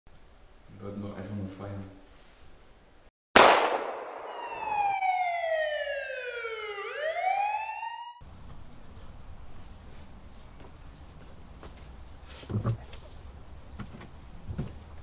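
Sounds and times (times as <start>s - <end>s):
siren-like sliding tone: 4.3s - 8.2s.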